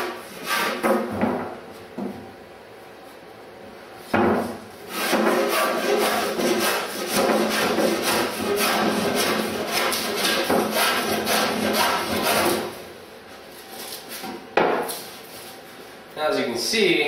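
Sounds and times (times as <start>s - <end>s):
block plane shaving wood: 4.9s - 12.8s.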